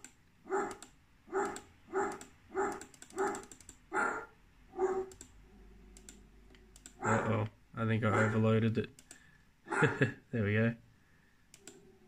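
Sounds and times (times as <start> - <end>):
faint low hum: 0.0 - 12.0
recorded dog barks: 0.4 - 5.1, 7.0 - 8.5, 9.7 - 10.1.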